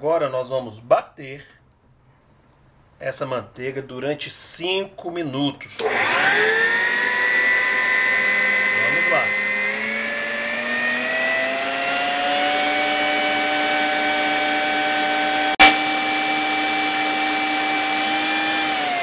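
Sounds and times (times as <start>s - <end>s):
stand mixer motor whine: 5.8s - 19.0s.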